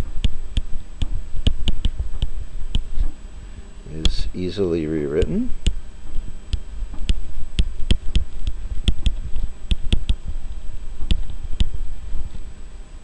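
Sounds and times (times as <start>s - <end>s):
stylus tapping on a drawing tablet: 0.0s - 3.2s, 5.2s - 10.4s, 11.0s - 11.8s
steady low hum: 0.0s - 13.0s.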